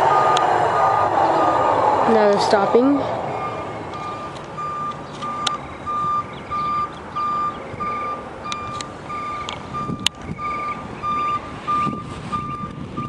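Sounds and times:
truck backup alarm beeping: 0.0s - 1.6s, 2.4s - 13.0s.

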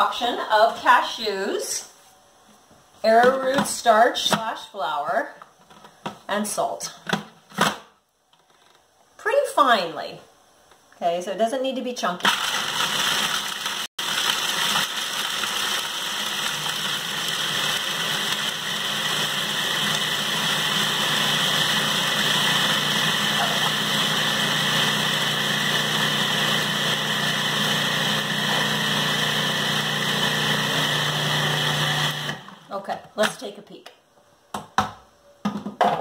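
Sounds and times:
food processor grinding: 12.2s - 32.7s.

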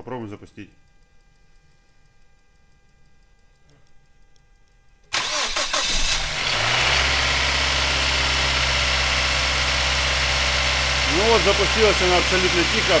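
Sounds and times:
car engine starting and idling: 5.1s - 13.0s
starter motor cranking: 5.2s - 8.4s.

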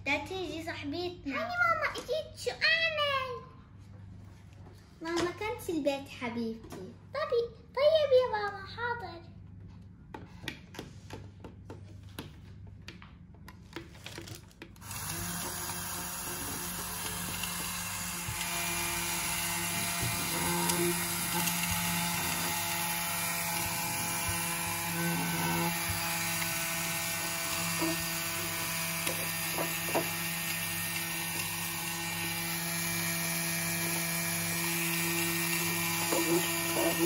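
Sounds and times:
small electric motor humming: 14.8s - 37.0s.

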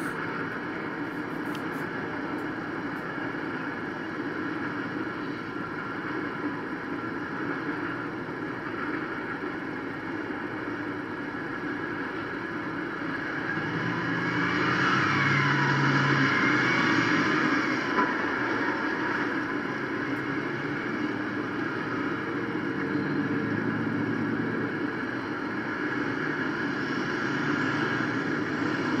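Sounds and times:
freight train rumbling past: 0.0s - 29.0s
street traffic: 0.0s - 29.0s
wavering high whine: 0.0s - 29.0s.

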